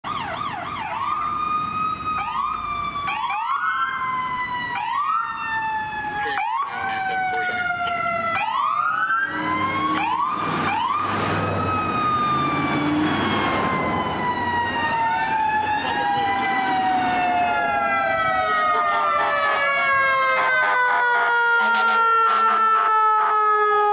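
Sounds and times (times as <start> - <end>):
siren wail tones: 0.0 - 23.9
siren yelp sweeps: 0.0 - 23.9
vehicle engine passing close: 9.0 - 17.7.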